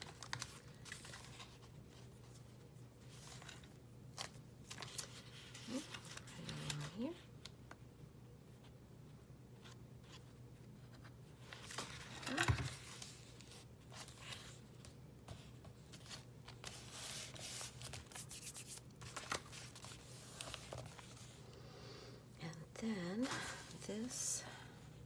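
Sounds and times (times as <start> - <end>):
paper rustling: 0.0 - 7.0, 9.6 - 21.4.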